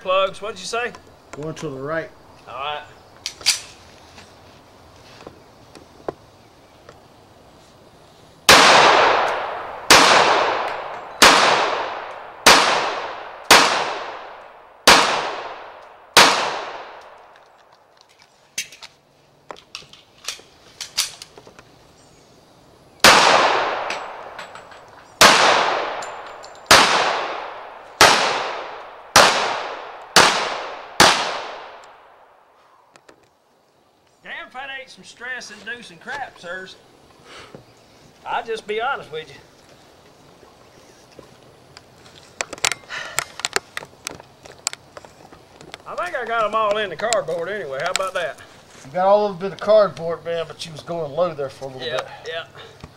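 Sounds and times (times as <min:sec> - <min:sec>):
pistol shots echoing: 0:08.5 - 0:17.2, 0:23.0 - 0:24.4, 0:25.2 - 0:32.1.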